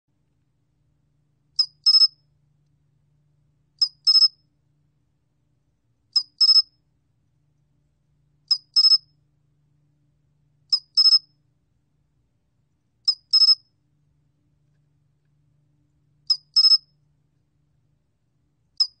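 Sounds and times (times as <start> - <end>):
cricket chirping: 1.6 - 2.2, 3.8 - 4.4, 6.2 - 6.8, 8.5 - 9.1, 10.7 - 11.3, 13.1 - 13.7, 16.3 - 17.0, 18.8 - 19.0.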